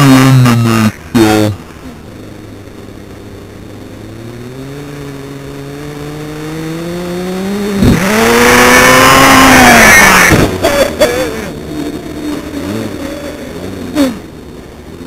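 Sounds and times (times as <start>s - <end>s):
sharp thump: 7.8s - 8.1s, 10.2s - 10.6s.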